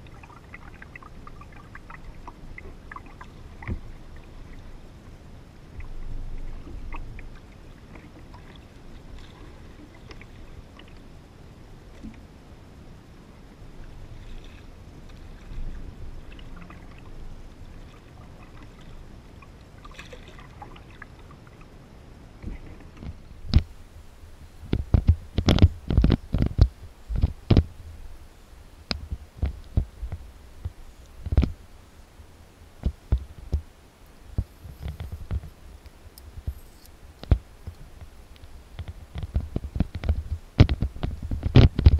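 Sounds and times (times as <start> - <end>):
water splashes and drips: 0.0 - 4.8, 13.8 - 21.7
waves lapping against kayak hull: 0.0 - 41.9
wind rumble on microphone: 0.0 - 41.9
dry brush rustling: 33.6 - 37.1.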